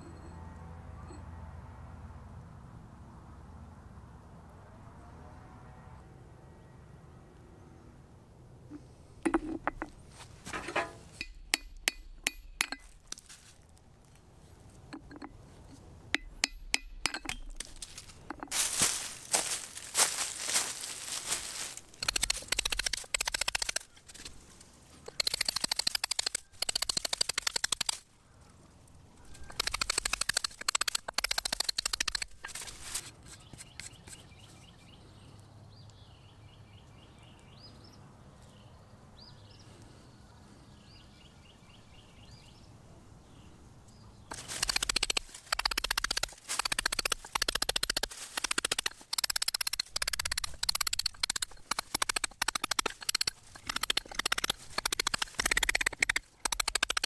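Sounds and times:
hammer striking chisel on rock: 10.6s - 13.0s, 16.2s - 17.7s.

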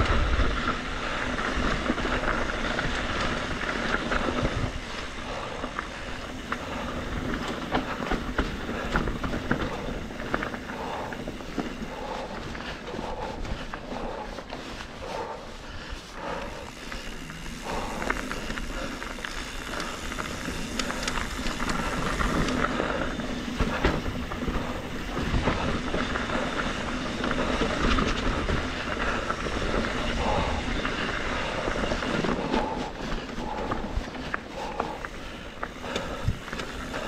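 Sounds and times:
bike clicks and rattles: 0.0s - 37.0s
bike tyres rolling over dirt: 0.0s - 37.0s
steady rushing noise: 0.0s - 37.0s.

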